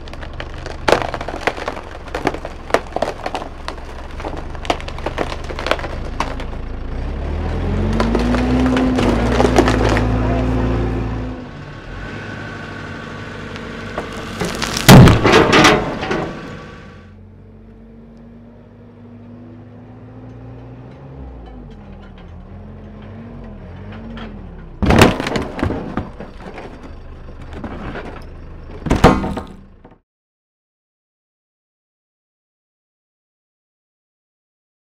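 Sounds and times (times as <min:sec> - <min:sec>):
wooden door cracking and splintering: 0:00.0 - 0:06.6, 0:08.0 - 0:10.2, 0:14.0 - 0:16.4, 0:24.8 - 0:28.2, 0:28.8 - 0:29.8
diesel engine revving: 0:00.0 - 0:28.8
wooden door cracking: 0:14.1 - 0:16.1, 0:24.8 - 0:26.8, 0:28.8 - 0:29.6.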